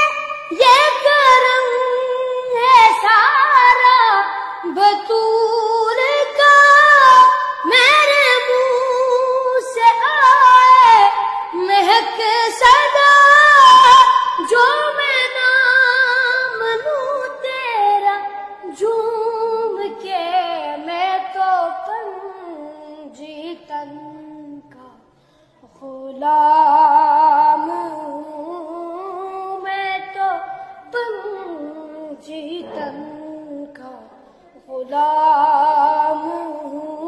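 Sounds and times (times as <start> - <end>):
boy singing unaccompanied: 0.0 - 25.0, 25.7 - 37.0
singer breathing: 25.0 - 25.7.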